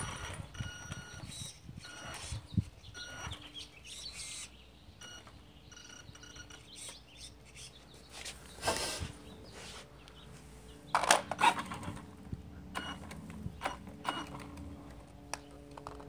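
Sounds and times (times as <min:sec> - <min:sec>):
high-pitched electric motor whine: 0:00.0 - 0:07.8, 0:11.3 - 0:16.0
small birds chirping: 0:00.0 - 0:15.8.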